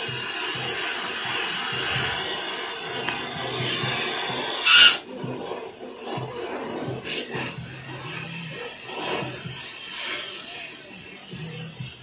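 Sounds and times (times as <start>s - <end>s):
loud rush of gas: 0.0s - 5.1s
torch flame hissing: 0.0s - 12.0s.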